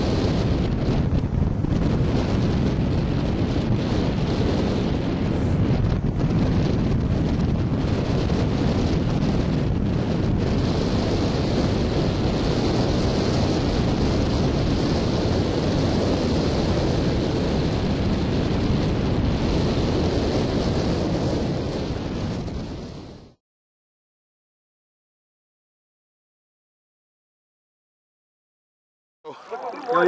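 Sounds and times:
wind buffeting microphone: 0:00.0 - 0:23.4.

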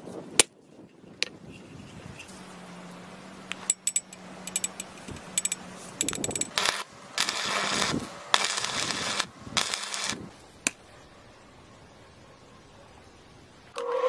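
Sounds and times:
arc welder crackling: 0:02.4 - 0:10.9.

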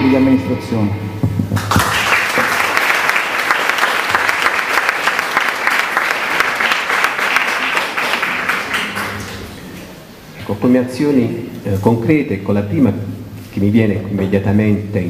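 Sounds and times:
audience applauding: 0:01.5 - 0:09.7.

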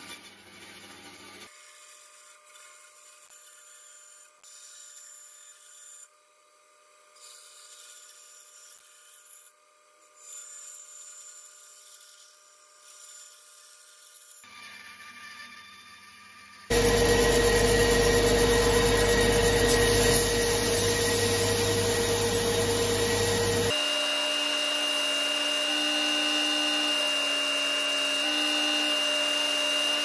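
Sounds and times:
bandsaw cutting plywood: 0:16.7 - 0:30.0
steady machine whine: 0:16.7 - 0:30.0.

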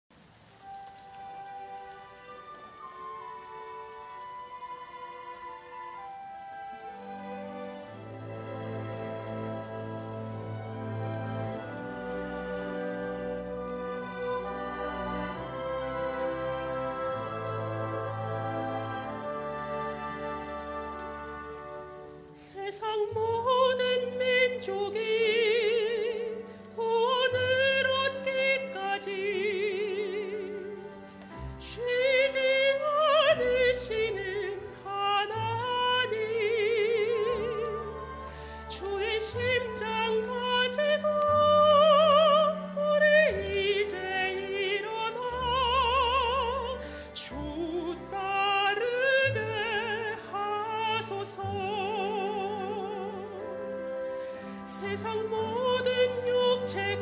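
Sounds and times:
piano accompaniment: 0:00.5 - 0:57.0
woman singing operatically: 0:22.4 - 0:31.0, 0:31.6 - 0:54.0, 0:54.6 - 0:57.0.

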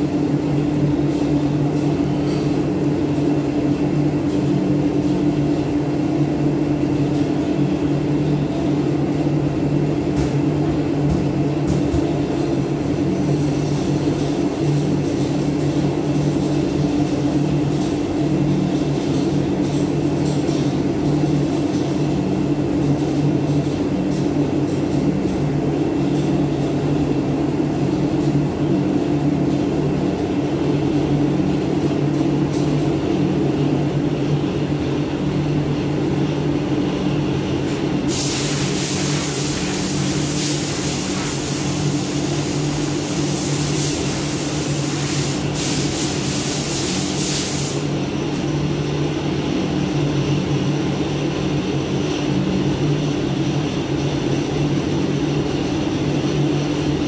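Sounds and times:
machinery hum: 0:00.0 - 0:57.0
loud hiss: 0:38.1 - 0:47.9.

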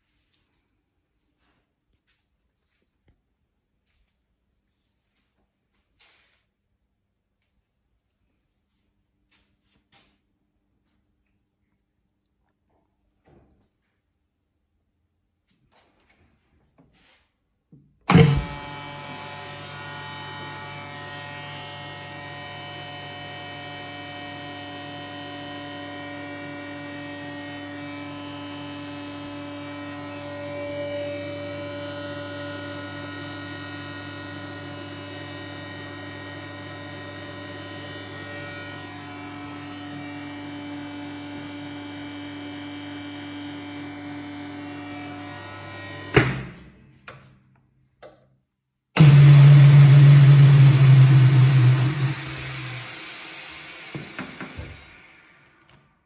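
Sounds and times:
vacuum pump humming: 0:18.1 - 0:46.4, 0:49.0 - 0:55.9.

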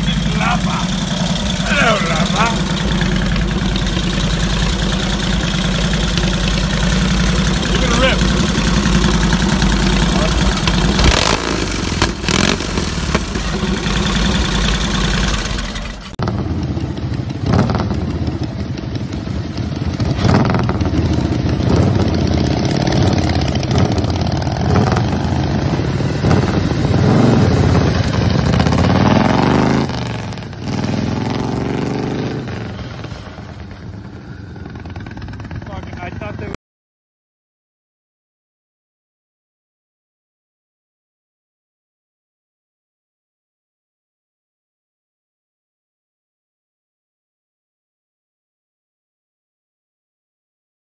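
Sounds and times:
motorcycle engine running loudly: 0:00.0 - 0:36.6
motorcycles revving and pulling away: 0:00.0 - 0:36.6.

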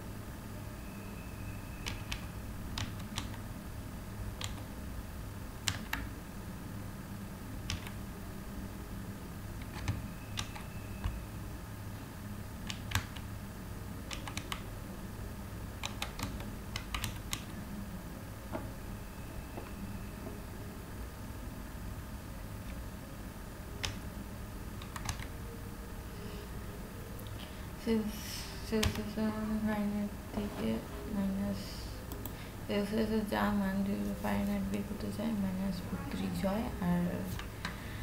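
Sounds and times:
steady low hum: 0:00.0 - 0:38.0
keyboard typing clicks: 0:01.8 - 0:03.4, 0:04.4 - 0:04.7, 0:05.6 - 0:06.1, 0:07.6 - 0:08.0, 0:09.6 - 0:11.2, 0:12.6 - 0:13.3, 0:14.1 - 0:14.7, 0:15.8 - 0:17.6, 0:23.8 - 0:24.1, 0:24.8 - 0:25.3, 0:28.8 - 0:29.1.

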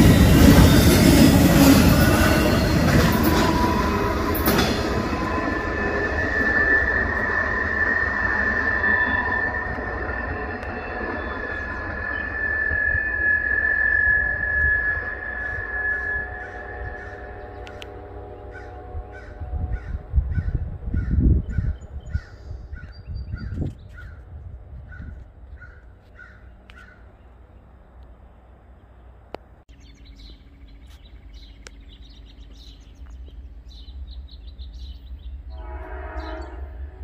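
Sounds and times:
crow cawing: 0:24.9 - 0:27.0
small birds chirping: 0:25.0 - 0:35.5.

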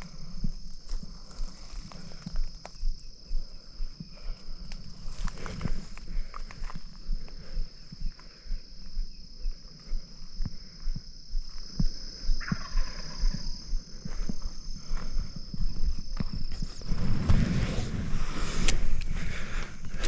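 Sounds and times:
footsteps in dry grass: 0:00.0 - 0:20.0
insect trill: 0:00.0 - 0:20.0
distant turkey gobble: 0:12.4 - 0:13.4.

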